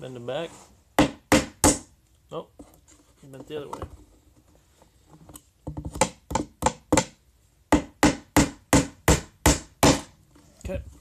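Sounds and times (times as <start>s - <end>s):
hammer striking nail into wood: 1.0s - 1.9s, 5.9s - 10.1s.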